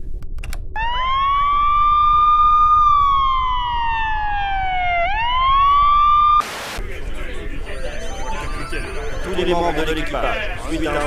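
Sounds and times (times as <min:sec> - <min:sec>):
wailing alarm siren: 0:00.8 - 0:06.4.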